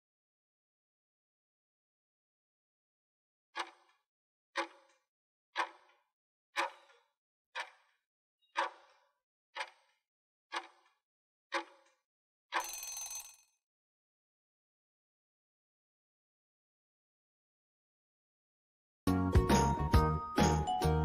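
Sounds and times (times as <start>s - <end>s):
timer ticking: 4.6s - 4.9s, 5.6s - 6.0s, 6.6s - 7.0s, 8.6s - 9.0s, 9.6s - 10.8s.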